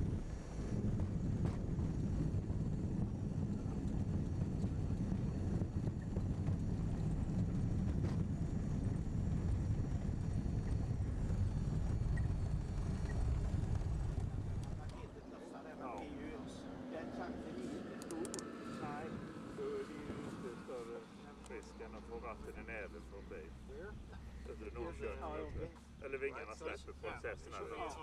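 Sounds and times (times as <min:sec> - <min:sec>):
vehicle cabin rumble: 0:00.0 - 0:15.2.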